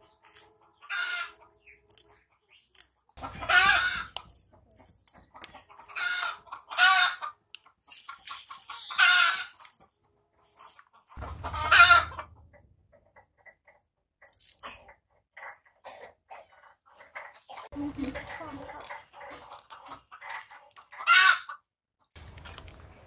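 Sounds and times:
rooster crowing: 11.2 - 12.3.

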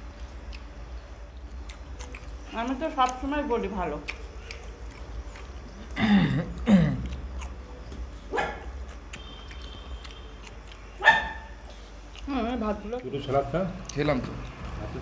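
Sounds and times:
dog barking and whining: 8.3 - 8.8, 11.0 - 11.6.

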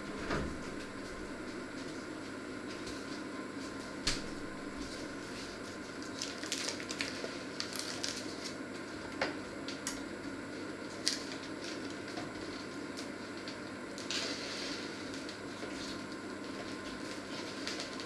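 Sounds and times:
low hum: 0.0 - 1.8
snack packet crinkling: 5.9 - 8.6.

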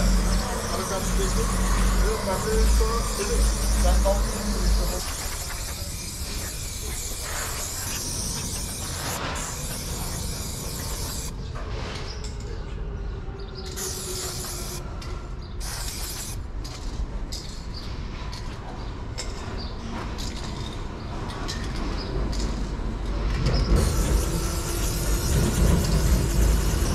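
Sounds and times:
spray paint can hissing: 0.0 - 11.3, 13.7 - 14.8, 15.6 - 16.4, 23.8 - 26.9.

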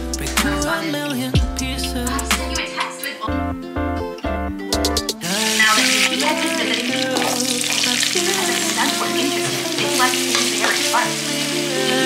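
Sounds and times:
background music: 0.0 - 12.0
vegetables sizzling in hot oil: 5.3 - 12.0.

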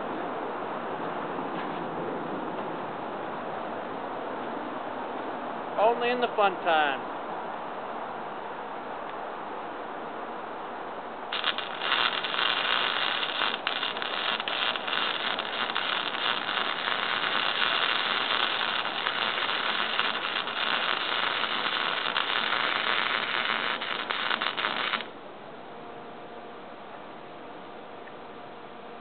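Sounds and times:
welding arc crackling: 11.3 - 25.2.

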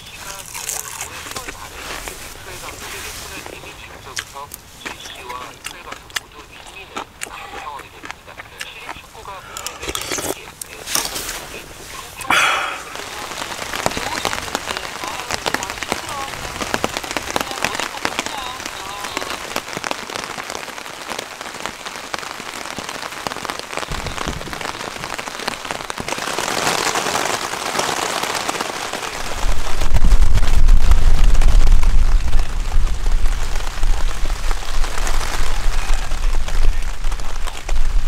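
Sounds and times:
steady rain falling: 0.0 - 38.0
deep rumble of thunder: 29.4 - 38.0.

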